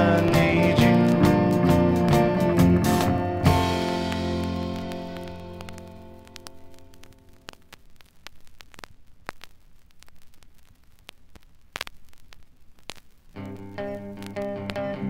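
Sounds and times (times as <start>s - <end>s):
music playing: 0.0s - 7.0s, 13.4s - 15.0s
vinyl crackle and pops: 0.0s - 15.0s.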